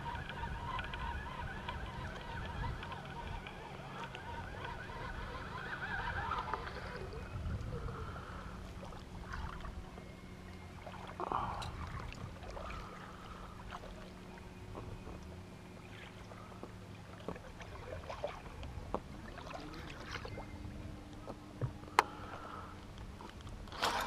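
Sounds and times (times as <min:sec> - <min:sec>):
geese honking: 0:00.0 - 0:07.2
electric trolling motor humming: 0:00.0 - 0:24.0.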